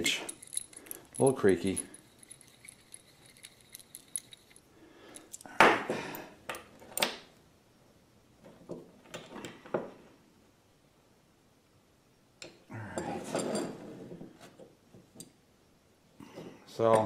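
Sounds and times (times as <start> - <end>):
metal pieces clinking: 0.0 - 5.5.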